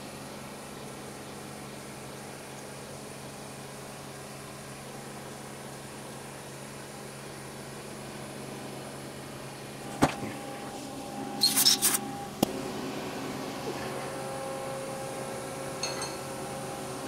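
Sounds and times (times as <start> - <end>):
steady machine hum: 0.0 - 17.0
reamer scraping rattle: 10.7 - 12.2.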